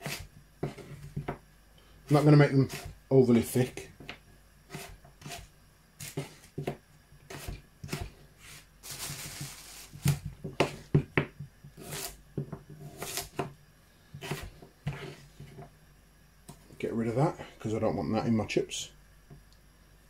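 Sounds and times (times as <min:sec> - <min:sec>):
knife chopping on plastic board: 0:00.0 - 0:01.4, 0:02.1 - 0:03.0, 0:04.0 - 0:08.1, 0:10.0 - 0:13.6, 0:14.2 - 0:15.6
plastic bag rustling: 0:08.4 - 0:10.2.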